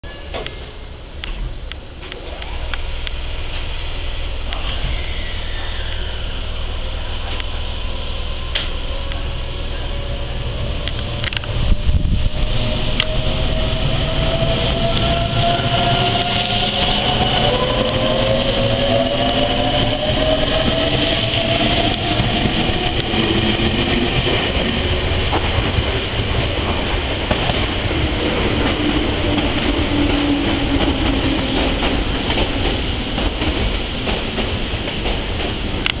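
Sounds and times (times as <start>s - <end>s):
electric train motors whining: 4.5s - 25.4s
steady rushing noise: 6.6s - 36.0s.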